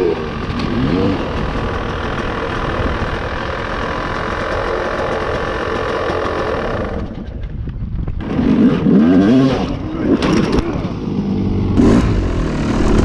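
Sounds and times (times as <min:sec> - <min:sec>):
dirt bike engine idling: 0:00.0 - 0:08.4.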